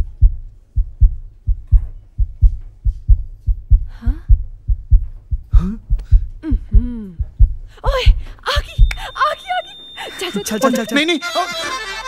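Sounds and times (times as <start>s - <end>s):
deep thumping bass beat: 0.0s - 9.1s.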